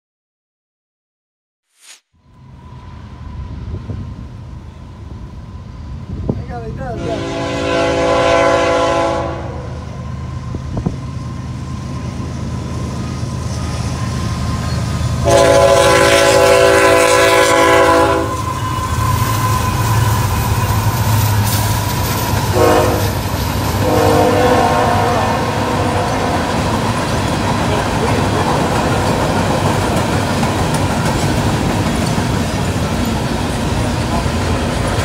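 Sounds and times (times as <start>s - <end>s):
diesel locomotive engines rumbling: 2.4s - 35.0s
train air horn blasts: 7.0s - 9.9s, 15.2s - 21.6s, 22.4s - 26.5s
freight cars rolling by: 18.3s - 35.0s.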